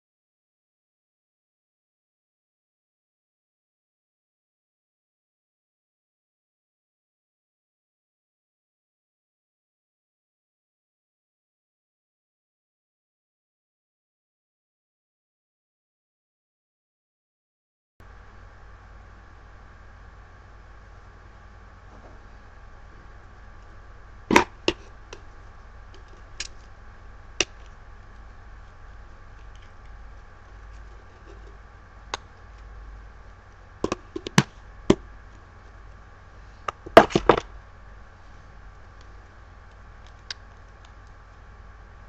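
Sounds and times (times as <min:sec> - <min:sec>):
faint electrical whine: 0:18.0 - 0:42.0.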